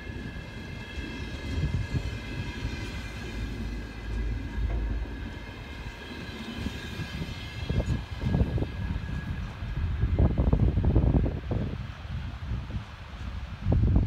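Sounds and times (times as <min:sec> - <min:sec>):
steady high ringing tones: 0:00.0 - 0:11.3
train wheels rumbling on rails: 0:00.0 - 0:14.0.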